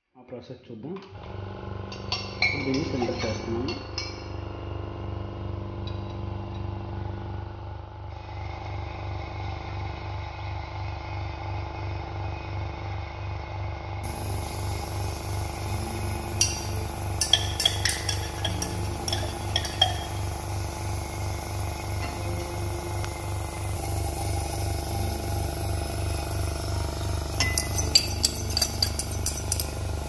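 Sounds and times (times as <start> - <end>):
vacuum pump pulsing hum: 1.2 - 2.6, 3.7 - 30.0
glass clinks: 16.4 - 20.4, 27.4 - 29.8.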